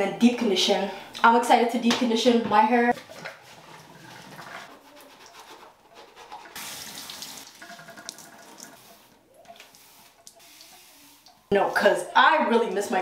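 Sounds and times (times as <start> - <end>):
shower water running: 6.2 - 11.5.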